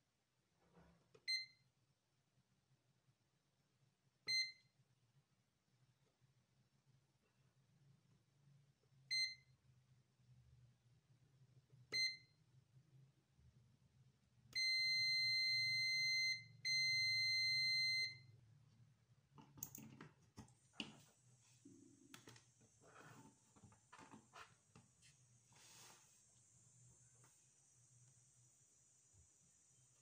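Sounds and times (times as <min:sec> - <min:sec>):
multimeter continuity beeps: 0:04.3 - 0:04.7, 0:14.6 - 0:18.3.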